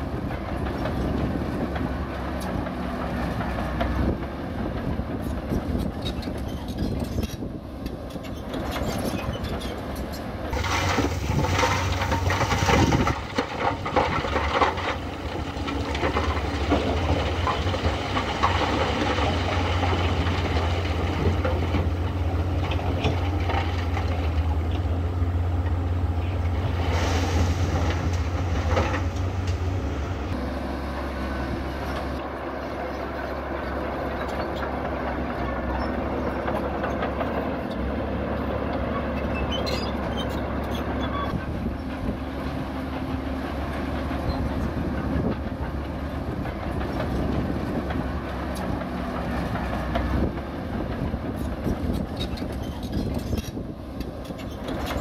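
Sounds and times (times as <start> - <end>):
bulldozer diesel engine running: 0.0 - 55.0
tracks clanking: 0.0 - 55.0.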